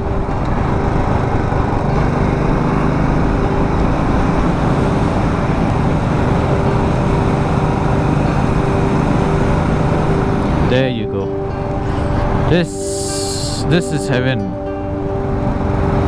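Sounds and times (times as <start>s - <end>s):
wind and road rush on microphone: 0.0s - 10.8s, 14.6s - 16.0s
motorcycle engine cruising: 0.0s - 16.0s.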